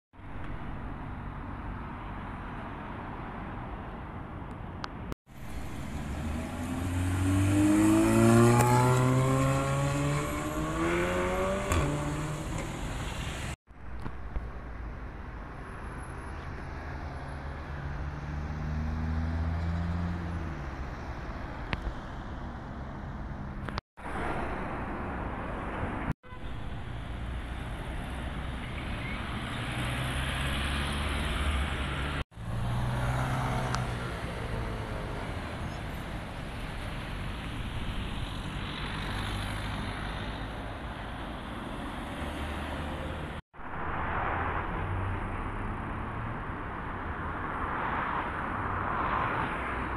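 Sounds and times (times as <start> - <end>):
city street traffic: 0.2 - 49.9
car pulling away: 5.5 - 13.6
car accelerating hard: 6.0 - 12.9.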